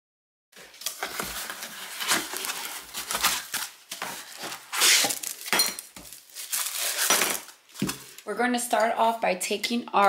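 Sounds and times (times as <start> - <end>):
plastic wrap rustling: 0.6 - 8.3
cardboard and foam scraping: 0.7 - 5.4.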